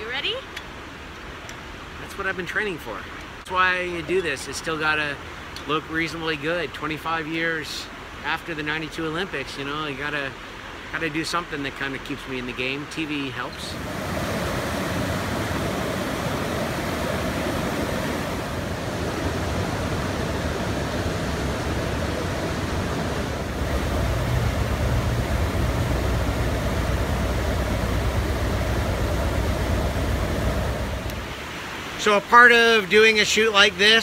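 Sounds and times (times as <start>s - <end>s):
water rushing over rocks: 10.2s - 33.9s.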